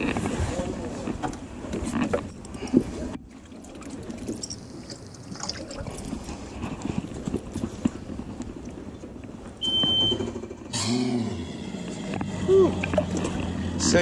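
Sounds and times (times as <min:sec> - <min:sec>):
water sloshing and trickling: 0:00.0 - 0:10.7, 0:11.4 - 0:14.0
knocks and splashes: 0:00.0 - 0:14.0
short high beep: 0:09.6 - 0:10.3.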